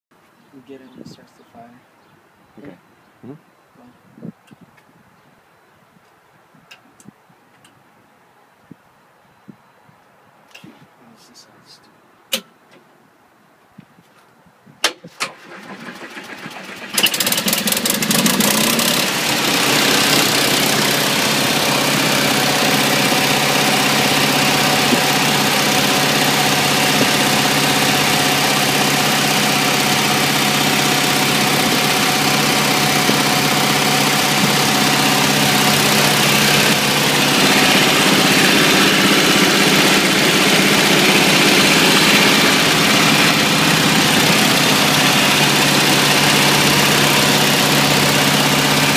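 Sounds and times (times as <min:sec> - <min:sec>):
gasoline engine cranking and running: 0:15.3 - 0:48.9.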